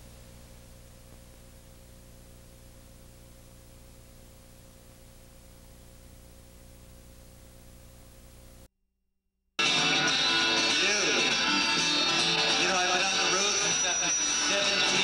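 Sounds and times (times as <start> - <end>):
low mains hum: 0.0 - 8.7.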